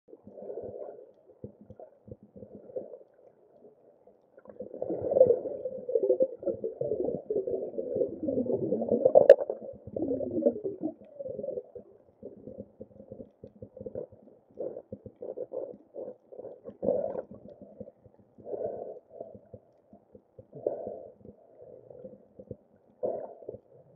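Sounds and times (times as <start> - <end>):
muffled underwater gurgling and bubbling: 4.6 - 13.1.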